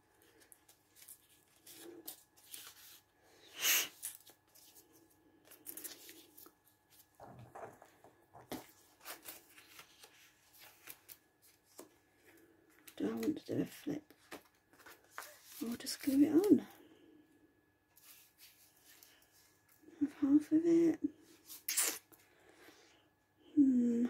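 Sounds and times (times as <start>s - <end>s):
paper rustling and crinkling: 0.1s - 3.1s, 3.9s - 16.6s, 17.9s - 19.8s.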